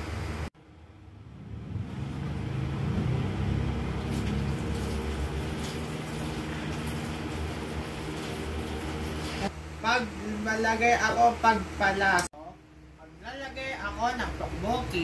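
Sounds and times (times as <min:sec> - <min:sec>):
portable stove humming: 0:00.0 - 0:10.5.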